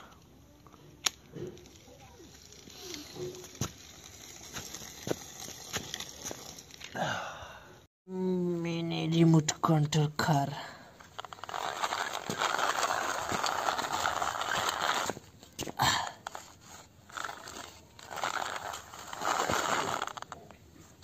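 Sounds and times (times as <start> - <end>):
plastic wheels rolling on concrete: 0.5 - 7.0, 10.9 - 21.0
toy car motor whirring: 0.9 - 6.9, 11.1 - 15.5, 16.2 - 21.0.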